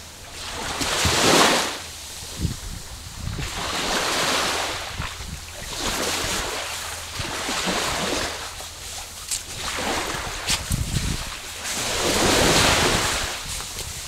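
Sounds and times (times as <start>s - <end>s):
surf washing on beach: 0.0s - 14.0s
wind rumbling on microphone: 0.7s - 14.0s.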